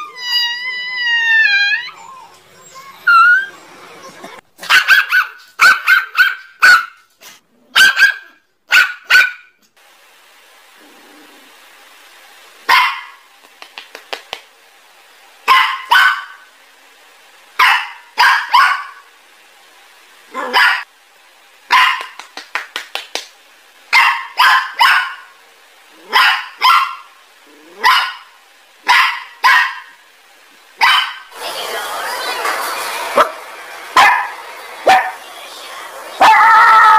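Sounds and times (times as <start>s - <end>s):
puppy yipping barks: 2.7s - 3.6s, 4.6s - 7.1s, 7.7s - 9.6s, 12.7s - 13.2s, 15.5s - 16.4s, 17.6s - 19.0s, 20.4s - 20.9s, 21.7s - 22.2s, 23.9s - 25.3s, 26.1s - 27.1s, 27.8s - 28.3s, 28.9s - 30.0s, 30.8s - 31.3s, 34.0s - 34.3s, 34.9s - 35.2s
dog barking: 4.6s - 7.1s, 7.7s - 9.6s, 12.7s - 13.2s, 15.5s - 16.5s, 17.6s - 19.0s, 20.3s - 20.9s, 21.7s - 22.2s, 23.9s - 25.3s, 26.0s - 27.1s, 27.7s - 30.0s, 30.8s - 31.3s, 33.2s - 33.4s, 34.0s - 35.2s.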